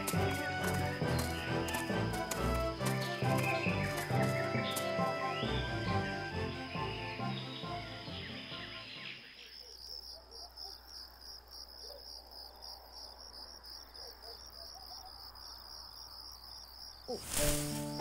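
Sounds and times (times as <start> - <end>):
music: 0.0 - 9.2, 17.3 - 18.0
crickets chirping: 0.0 - 18.0.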